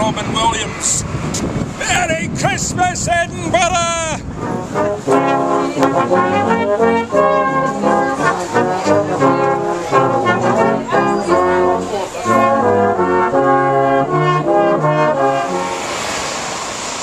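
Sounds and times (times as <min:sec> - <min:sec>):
brass band playing: 0:01.8 - 0:16.6
tuba bass notes: 0:04.0 - 0:15.8.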